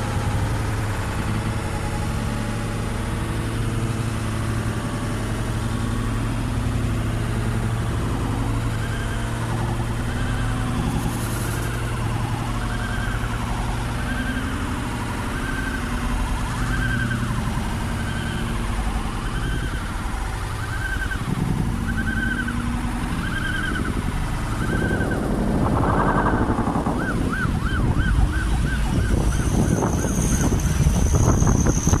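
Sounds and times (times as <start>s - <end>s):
engine and traffic rumble: 0.0s - 32.0s
emergency vehicle siren: 7.7s - 32.0s.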